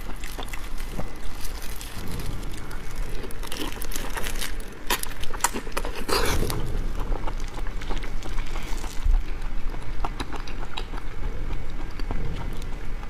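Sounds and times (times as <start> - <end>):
prawn shells cracking: 0.0 - 9.1
plastic gloves crinkling: 0.0 - 9.5.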